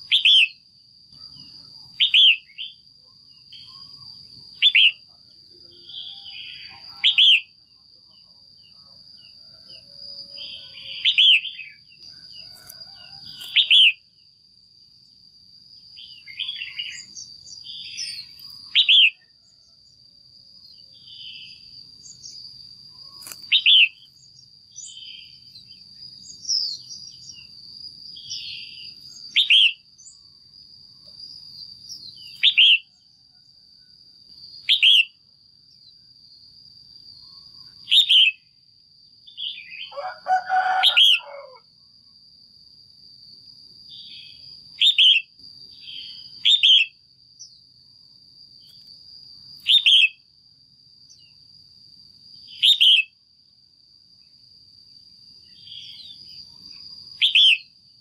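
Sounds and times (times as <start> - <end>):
bird calling: 4.6 - 5.0, 12.5 - 14.0.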